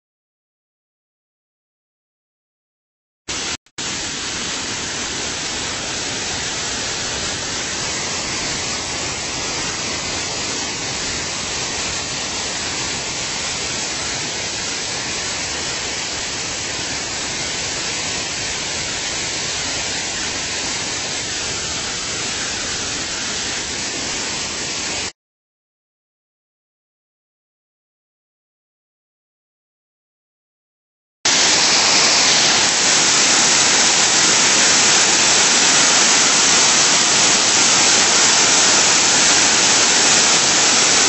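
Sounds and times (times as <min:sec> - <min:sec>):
waterfall rushing: 0:03.3 - 0:25.1, 0:31.3 - 0:41.0.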